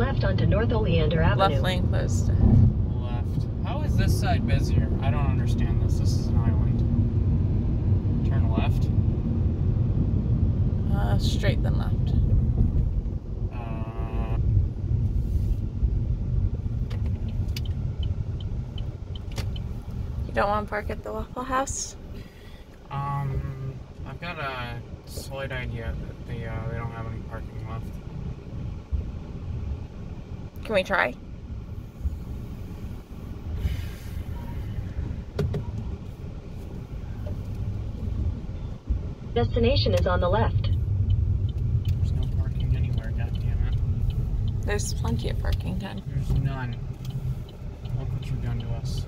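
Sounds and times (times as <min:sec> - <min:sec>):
turn signal ticking: 0:00.0 - 0:33.6, 0:34.2 - 0:49.0
car engine and tyre rumble: 0:00.0 - 0:49.0
sharp clicks: 0:16.8 - 0:19.7
brief hiss: 0:33.6 - 0:34.9.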